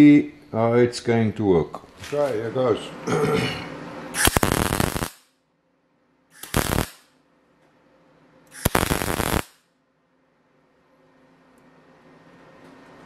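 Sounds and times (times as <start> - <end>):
welder arc bursts: 4.1 - 5.3, 6.4 - 7.2, 8.5 - 9.7.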